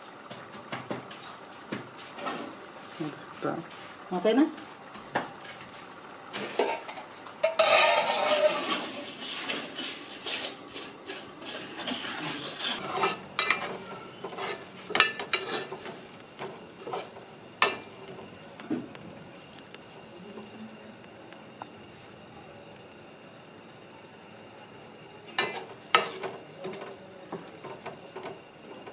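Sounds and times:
spoon scraping metal pot: 6.4 - 15.9.

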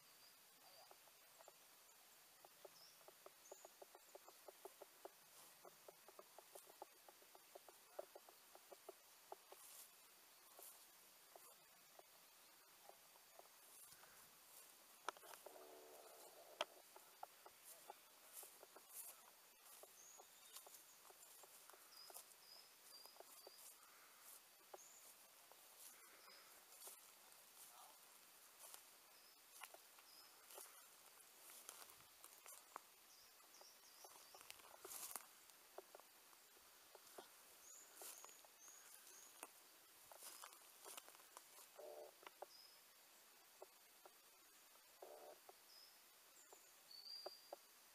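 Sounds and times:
small bird chirping: 0.0 - 47.9
crackles and clicks of leaf litter: 3.0 - 42.5
footsteps in dry leaves: 17.7 - 32.9, 34.1 - 35.5, 40.1 - 42.0.

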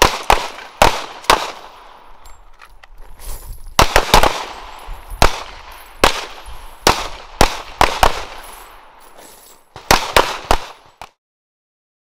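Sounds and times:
pistol shots echoing: 0.0 - 2.4, 3.8 - 11.1.

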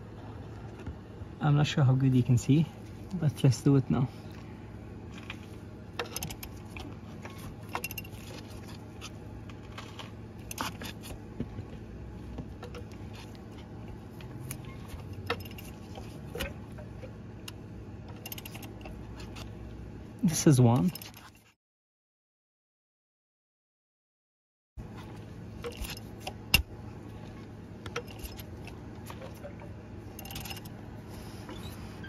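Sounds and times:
steady low hum: 0.0 - 21.6, 24.8 - 32.0.

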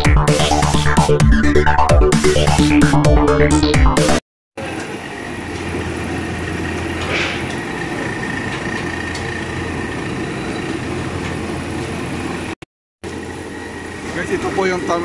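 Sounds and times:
low mechanical hum: 4.6 - 15.0.

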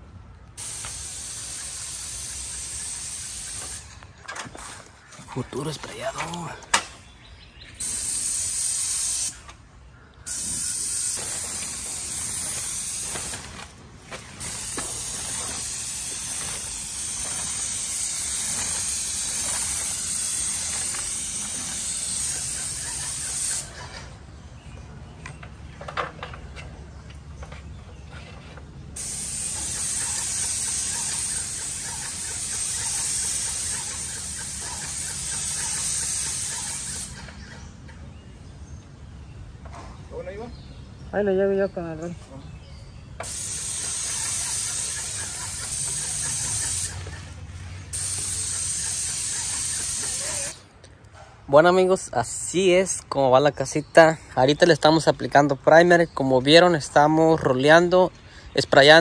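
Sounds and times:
paint sprayer hissing: 0.6 - 4.2, 7.8 - 9.5, 10.3 - 23.8, 28.9 - 37.5, 43.2 - 50.7.

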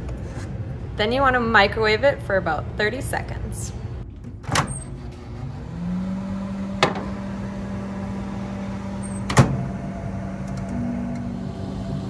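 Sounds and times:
microwave oven humming: 3.8 - 12.0.

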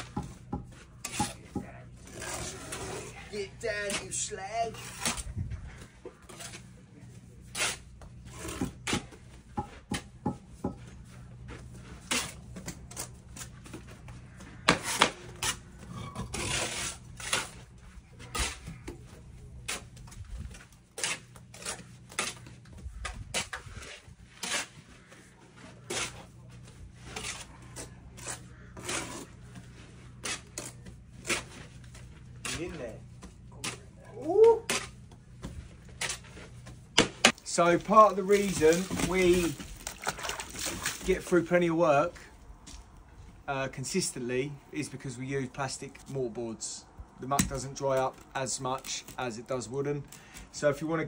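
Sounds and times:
trowels scraping mortar: 0.2 - 9.2, 10.9 - 41.4.

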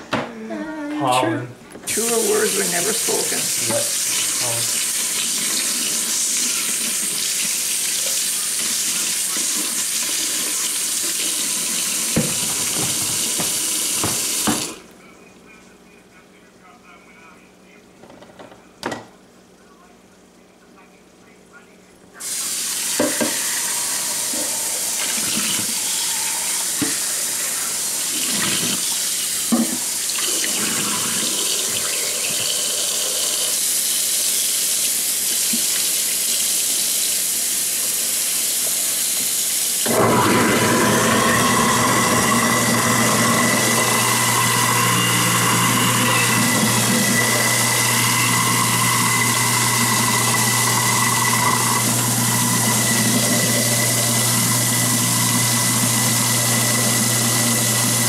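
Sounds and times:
faucet running into sink: 1.9 - 14.8, 22.2 - 58.0
motor hum: 22.2 - 33.7, 39.8 - 58.0.

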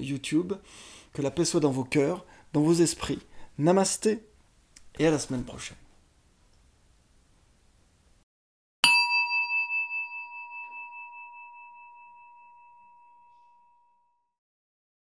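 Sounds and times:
singing bowl ringing: 8.8 - 14.4.

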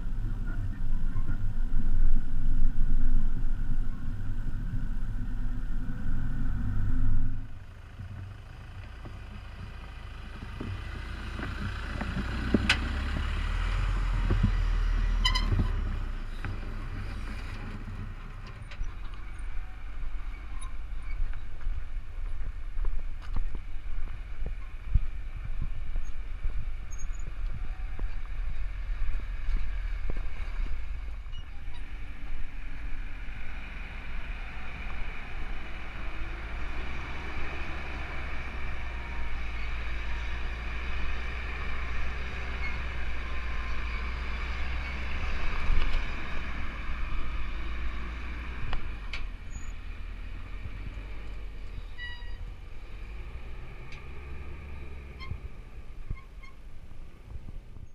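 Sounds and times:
truck engine rumbling: 0.0 - 57.9
wind buffeting microphone: 20.1 - 39.0.

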